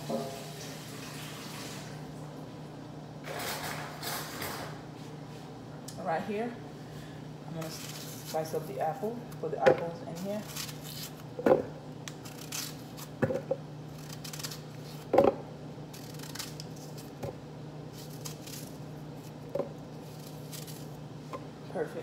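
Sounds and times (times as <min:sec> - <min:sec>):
steady low hum: 0:01.9 - 0:22.0
knife slicing crisp apple: 0:09.4 - 0:15.3, 0:15.9 - 0:21.4.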